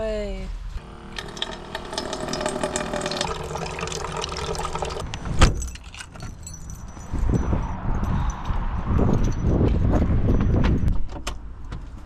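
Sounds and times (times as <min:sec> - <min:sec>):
water pouring into metal bowl: 0:00.8 - 0:05.0.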